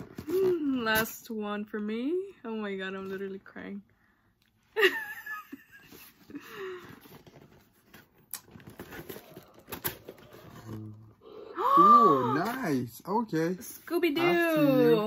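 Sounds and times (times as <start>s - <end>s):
woman wheezing laughter: 4.8s - 7.0s
cardboard box rustling: 5.9s - 11.1s.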